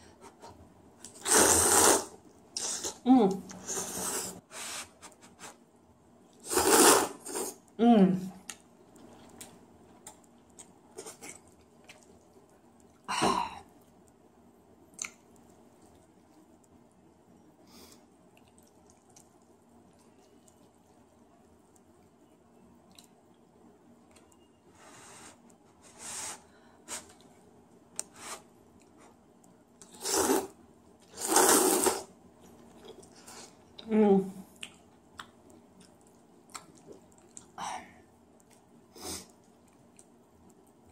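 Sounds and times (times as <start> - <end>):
person slurping noodles: 1.2 - 3.0, 6.4 - 7.6, 29.9 - 30.5, 31.1 - 32.1
person chewing noodles: 8.4 - 13.1, 18.2 - 21.9, 28.8 - 33.8, 34.5 - 37.6
wet mouth clicks: 15.0 - 15.2.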